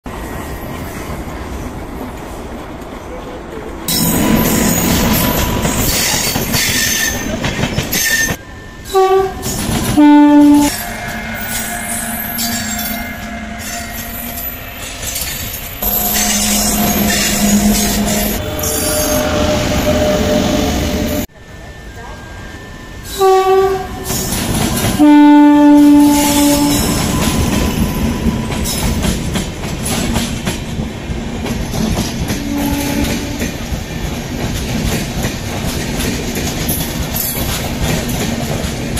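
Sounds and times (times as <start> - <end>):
train wheels clattering: 3.9 - 19.2, 25.8 - 38.9
two-tone train horn: 8.4 - 15.0, 15.8 - 21.3, 23.0 - 27.4, 32.3 - 33.6.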